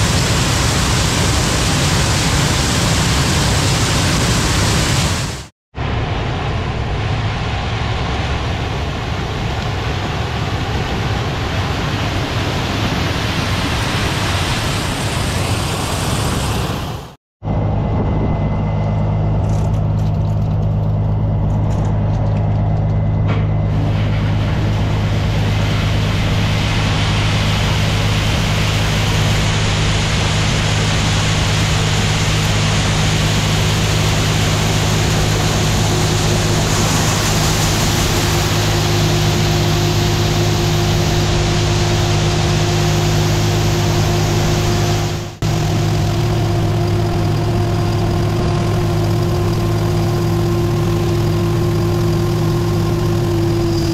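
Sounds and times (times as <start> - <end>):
diesel engines humming: 13.4 - 53.9.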